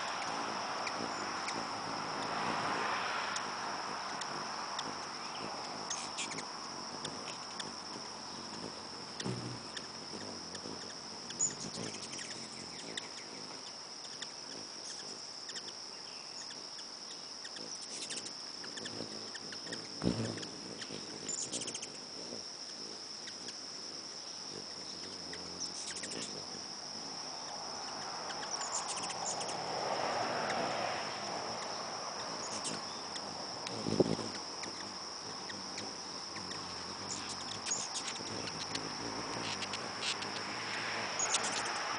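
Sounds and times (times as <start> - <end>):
broad rushing noise: 0.0 - 6.8, 27.1 - 34.6, 36.8 - 41.9
hummingbird chirps: 0.0 - 41.9.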